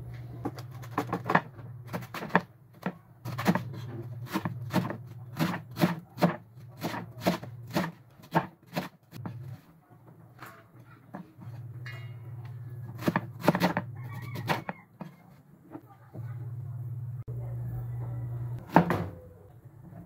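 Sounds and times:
knife cutting cabbage on board: 0.6 - 9.6, 12.9 - 15.2
low steady hum: 11.4 - 20.0.

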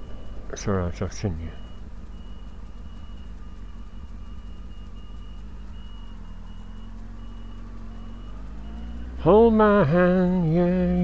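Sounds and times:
crossing signal short high beeps: 0.0 - 11.0
motorcycle engine idling: 0.0 - 11.0.

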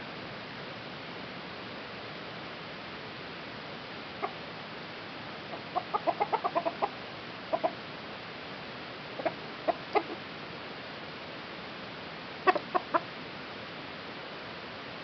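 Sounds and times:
steady hiss: 0.0 - 15.0
chickens clucking: 4.2 - 4.4, 5.4 - 7.8, 9.1 - 10.2, 12.4 - 13.1.

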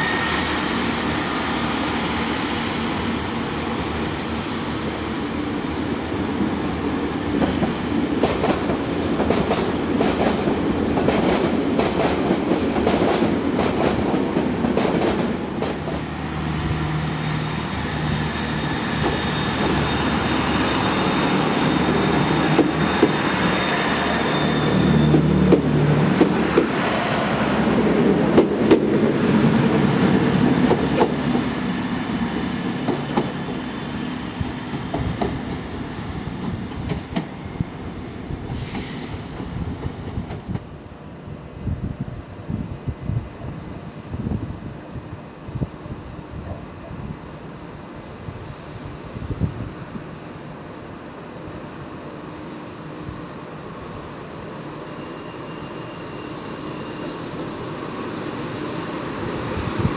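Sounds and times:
diesel train engines running: 13.8 - 40.5, 47.6 - 59.9.

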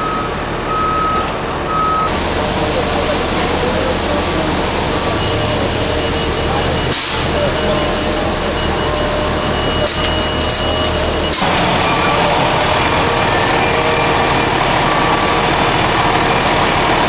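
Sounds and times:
diesel truck engine running: 0.0 - 17.0.

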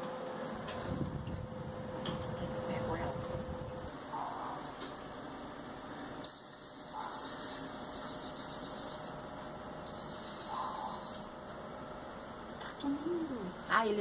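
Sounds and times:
insect trilling: 6.2 - 9.2, 9.9 - 11.3.

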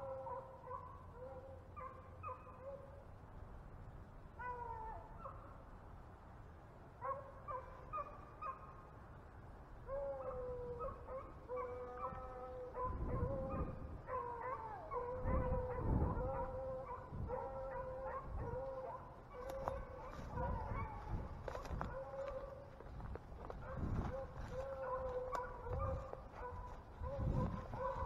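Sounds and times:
dogs baying: 9.9 - 28.0
microphone rumbles: 26.9 - 28.0.

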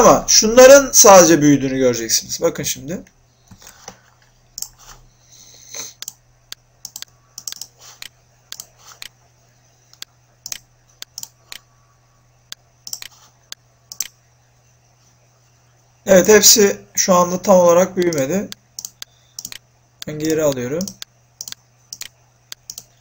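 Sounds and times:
faint low hum: 0.0 - 23.0
keyboard and mouse clicks: 4.6 - 5.0, 6.8 - 9.2, 9.9 - 11.6, 12.5 - 14.2, 18.0 - 23.0.

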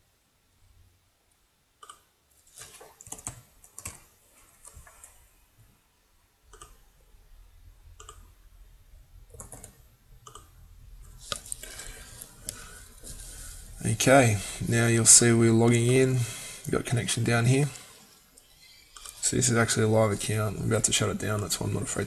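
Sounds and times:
mouse clicks: 1.8 - 2.1, 6.5 - 6.8, 8.0 - 8.3, 9.4 - 10.5
keyboard keys tapping: 2.7 - 5.1, 9.3 - 10.5.

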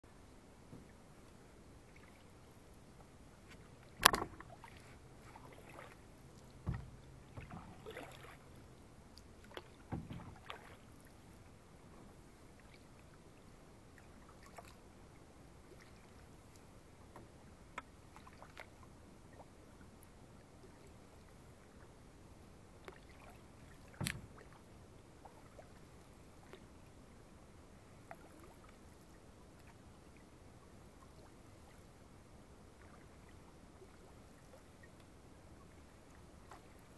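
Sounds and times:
paddle strokes and drips: 0.1 - 36.9
knocks in canoe: 6.6 - 8.0.

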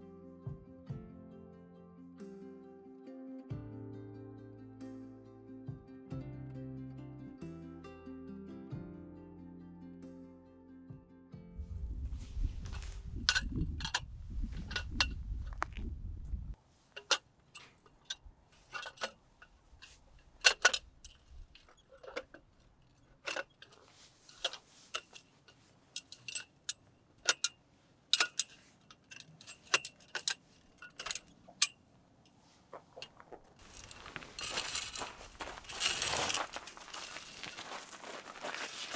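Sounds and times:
low rumble: 11.5 - 16.6
rustle: 16.6 - 38.9
small metal objects clinking: 33.6 - 38.0.

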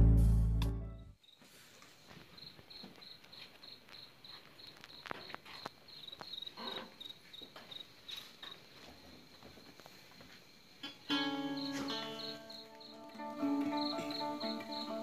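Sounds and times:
cricket chirping: 1.2 - 15.0.

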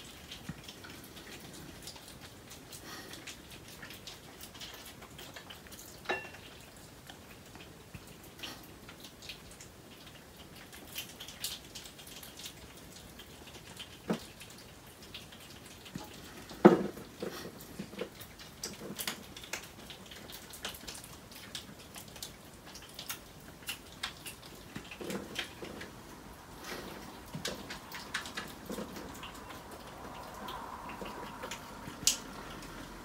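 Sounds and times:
animals crunching nuts: 0.0 - 33.0
claws clicking on plates: 0.0 - 33.0.

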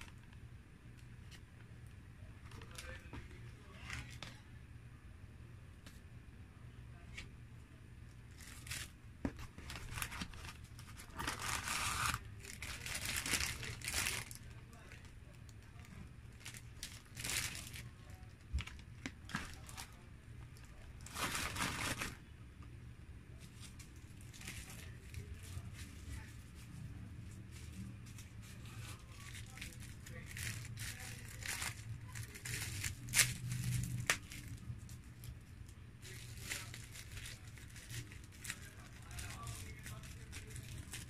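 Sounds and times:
low steady hum: 0.0 - 41.0
paper wrapper crinkling: 2.4 - 4.4, 8.3 - 20.0, 20.6 - 22.3, 23.4 - 26.7, 27.3 - 41.0.

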